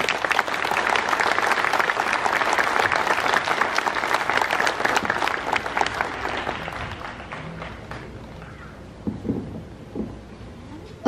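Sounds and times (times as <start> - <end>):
crowd applauding: 0.0 - 8.8.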